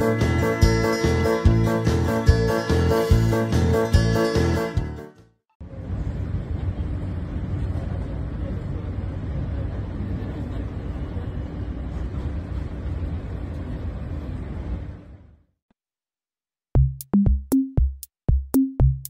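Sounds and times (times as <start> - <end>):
subway train running: 0.0 - 3.9, 5.6 - 15.4.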